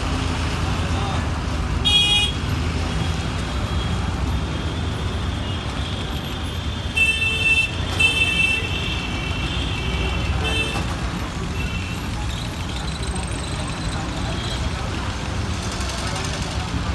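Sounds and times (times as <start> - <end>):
city traffic rumble: 0.0 - 16.9
vehicle horn honking: 1.8 - 2.4.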